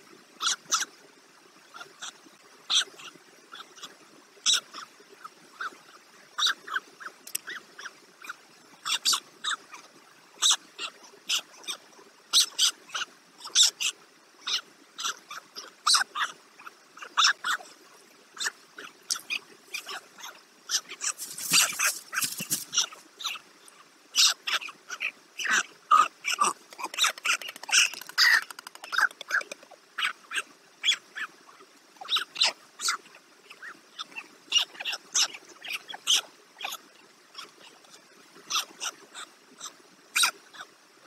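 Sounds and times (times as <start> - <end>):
short rustle: 21.1 - 22.8.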